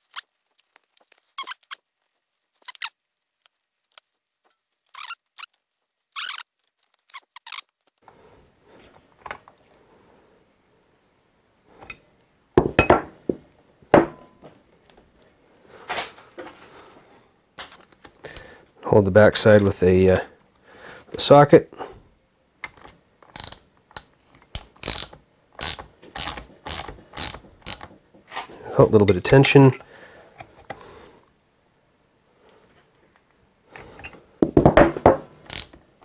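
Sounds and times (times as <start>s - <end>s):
wrenches clanking on bench: 23.3s - 28.0s.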